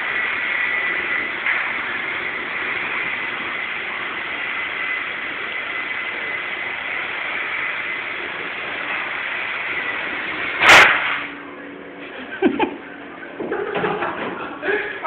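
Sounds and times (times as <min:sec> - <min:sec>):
toy helicopter motor whirring: 0:00.0 - 0:11.3.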